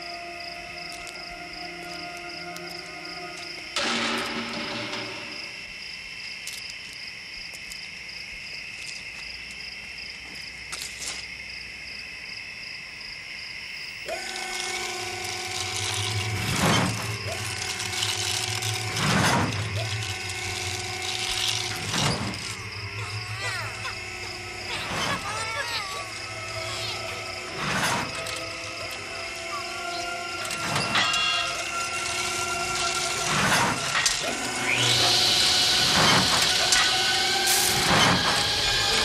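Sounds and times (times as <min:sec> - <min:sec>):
high-pitched drone: 0:00.0 - 0:05.7, 0:14.1 - 0:39.0
servo motors whirring: 0:14.1 - 0:39.0.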